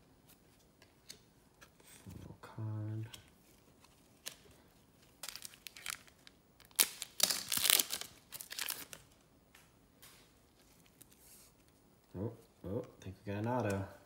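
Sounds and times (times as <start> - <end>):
wrapper crinkling and tearing: 3.8 - 9.2.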